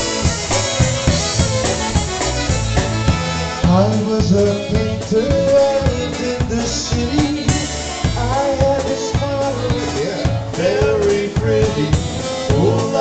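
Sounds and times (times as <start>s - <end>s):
concertina: 0.0s - 13.0s
drum kit polka beat: 0.0s - 13.0s
man singing: 3.6s - 13.0s.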